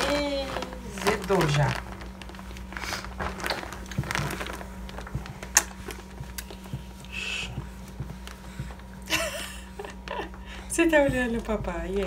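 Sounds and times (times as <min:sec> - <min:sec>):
clothing rustling: 0:00.0 - 0:07.0.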